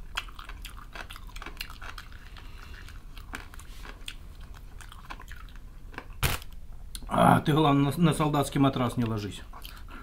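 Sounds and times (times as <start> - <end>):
crunchy chewing of fried chicken: 0.0 - 6.5.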